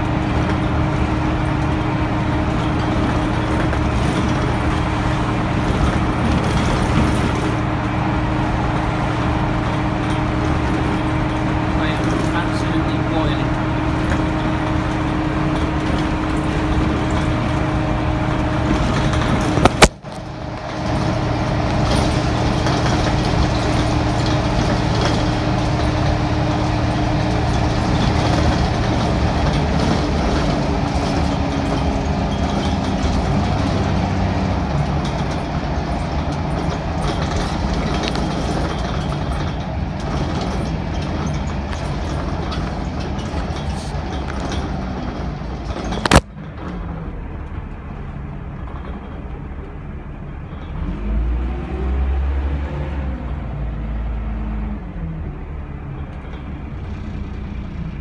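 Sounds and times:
bus diesel engine droning: 0.0 - 58.0
road noise: 0.0 - 58.0.

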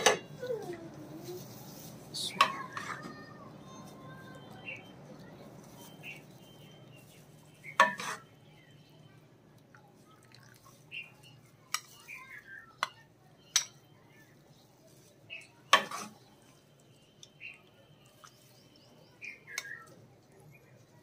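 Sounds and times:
metal ladle clinking on pot: 7.8 - 8.2, 12.8 - 13.9, 15.7 - 16.2.

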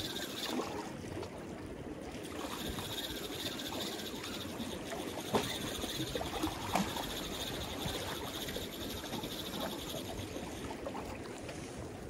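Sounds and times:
fishing reel ticking: 0.0 - 0.6, 2.2 - 10.7.

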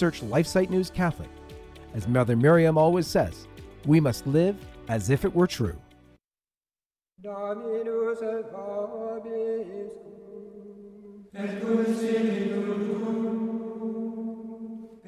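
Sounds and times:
chanted singing: 7.4 - 15.0.

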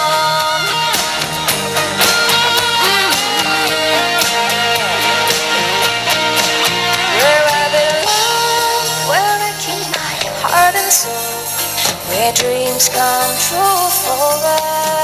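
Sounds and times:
sliding lead melody: 0.0 - 15.0
steady drum beat: 0.3 - 9.1.

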